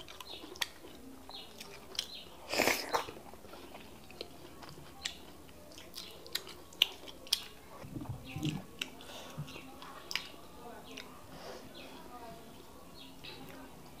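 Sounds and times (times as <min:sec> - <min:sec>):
wet chewing and lip smacking: 0:00.0 - 0:11.1.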